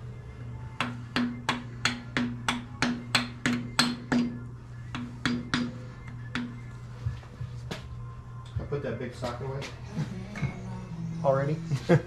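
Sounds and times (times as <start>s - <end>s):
hammer striking metal: 0.8s - 6.6s.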